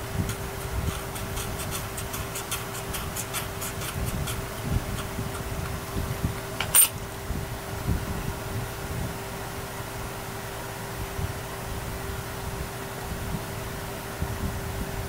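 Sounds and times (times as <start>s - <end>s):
scraping glue off plastic: 0.2s - 6.7s.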